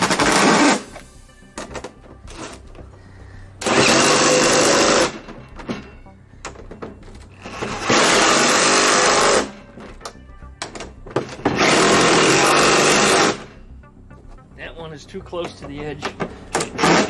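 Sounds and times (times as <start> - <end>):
impact driver running bolts: 3.6 - 5.2, 7.4 - 9.5, 11.4 - 13.4, 16.6 - 17.0
rattling handling noise: 4.9 - 8.0.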